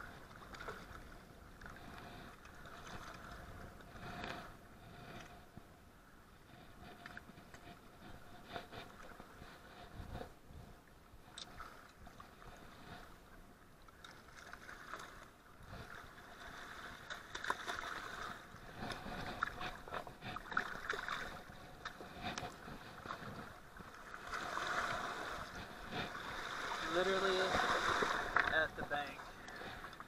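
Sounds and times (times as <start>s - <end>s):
water lapping against rocks: 0.0s - 5.7s, 6.4s - 30.0s
fish thrashing and splashing: 15.9s - 28.5s.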